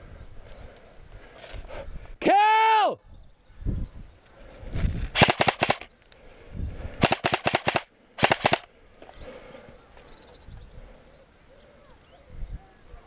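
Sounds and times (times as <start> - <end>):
airsoft rifle firing bursts: 5.1 - 5.9, 7.0 - 8.7.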